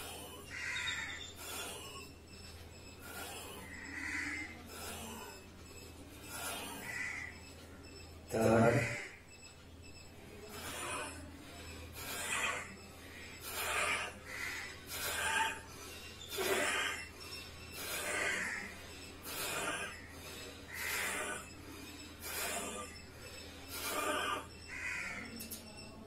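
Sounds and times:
man breathing forcefully through nose: 11.7s - 24.5s.

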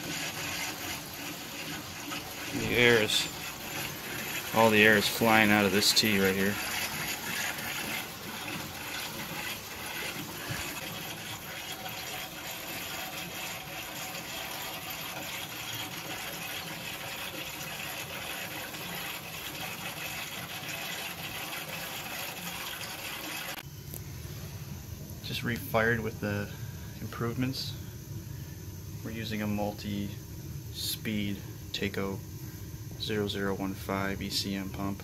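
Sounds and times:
water and air gushing through pipes: 0.0s - 23.6s.

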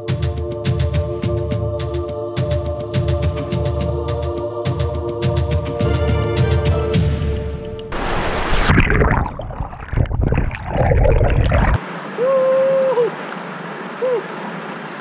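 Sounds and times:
river current rushing: 7.9s - 9.8s, 11.2s - 15.0s
muffled underwater churning: 8.0s - 11.8s.

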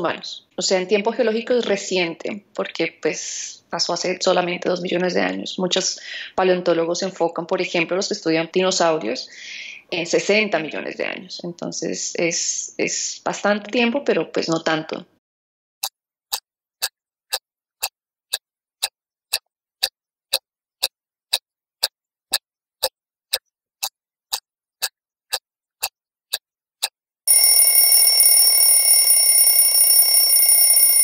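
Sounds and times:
clock ticking: 16.3s - 27.9s
alarm clock bell ringing: 27.3s - 31.0s.

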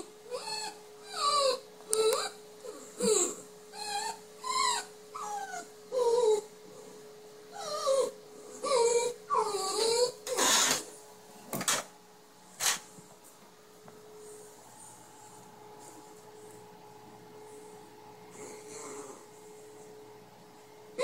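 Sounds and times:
puppy whining: 0.0s - 10.9s.

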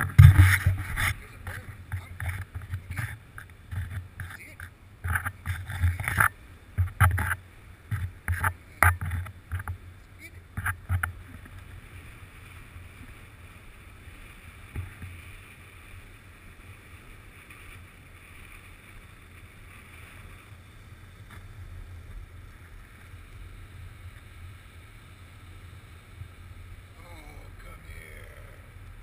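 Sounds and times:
wind rumble on microphone: 0.0s - 15.7s
small waves washing on beach: 0.0s - 29.0s.

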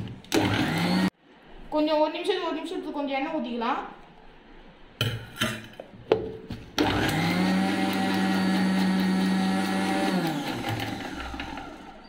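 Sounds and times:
mixer grinder motor whining: 0.3s - 1.1s, 6.8s - 12.0s.

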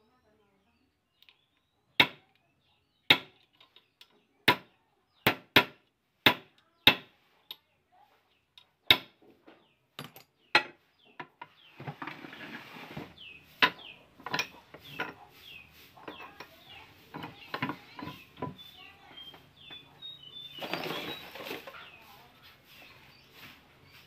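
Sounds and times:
chickens clucking: 12.6s - 24.0s.

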